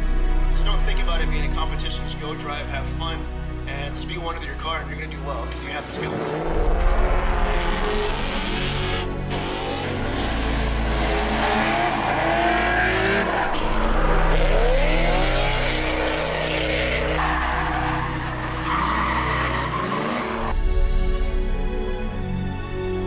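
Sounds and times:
car engines revving: 0:05.1 - 0:20.6
tyres squealing: 0:10.9 - 0:20.5.

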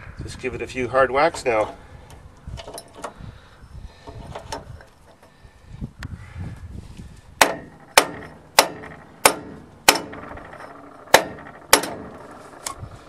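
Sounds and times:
sledgehammer striking metal: 0:07.4 - 0:12.6.

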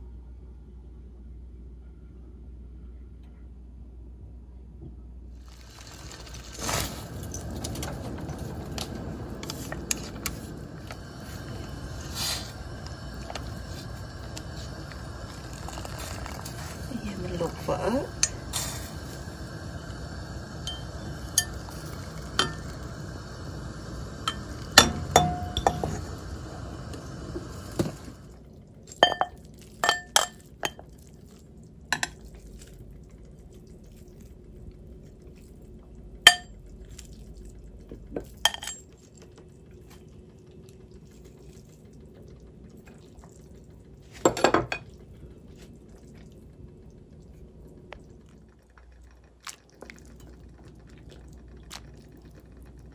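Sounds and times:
steady hiss: 0:05.4 - 0:28.4
utensils clinking on ceramic bowl: 0:20.7 - 0:21.6, 0:28.9 - 0:30.9, 0:36.3 - 0:36.5, 0:38.2 - 0:39.0.

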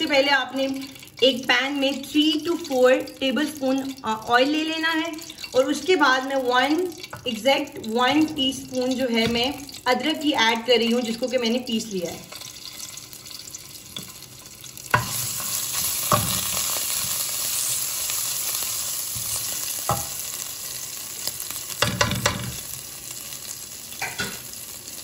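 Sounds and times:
ginger sizzling in hot oil: 0:00.0 - 0:25.0
wooden spoon knocking a pot: 0:21.8 - 0:22.6.

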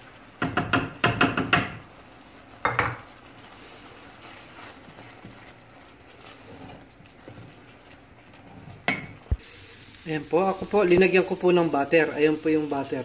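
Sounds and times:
wooden spoon scraping thick paste: 0:03.5 - 0:08.9.

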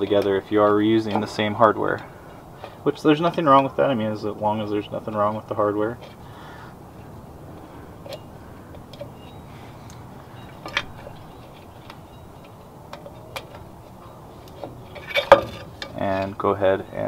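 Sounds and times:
light metallic clicks and clinks: 0:07.0 - 0:16.5.

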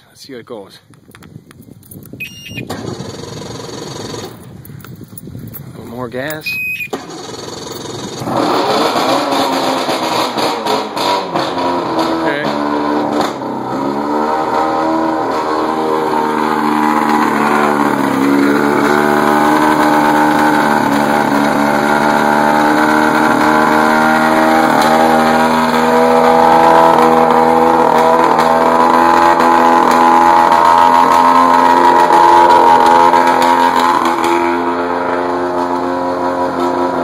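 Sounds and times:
outboard motor idling: 0:16.3 - 0:25.8.

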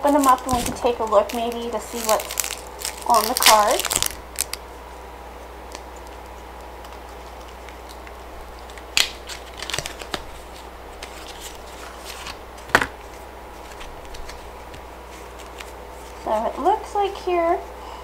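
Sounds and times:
card pack wrapper crinkling: 0:00.0 - 0:04.6, 0:06.8 - 0:16.3.

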